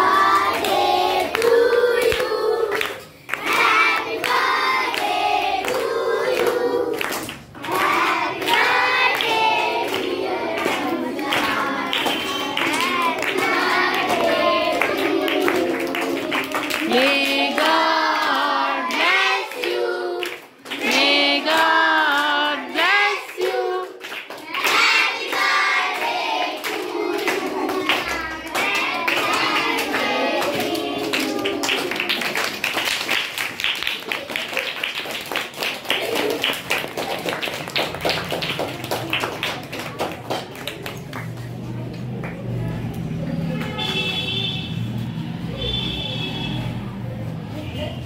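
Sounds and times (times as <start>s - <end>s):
group clapping: 0.0s - 44.5s
children singing: 7.6s - 23.9s, 24.5s - 32.1s.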